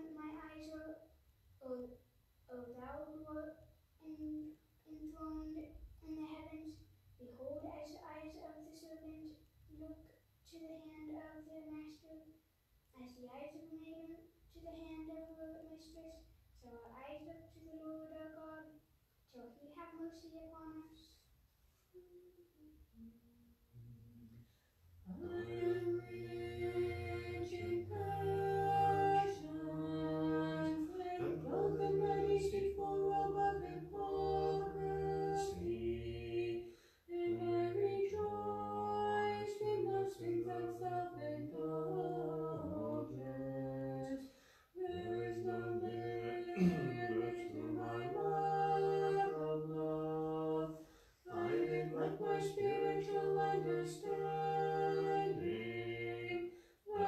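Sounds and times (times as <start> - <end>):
choir singing chant: 25.1 - 44.2, 44.8 - 57.0.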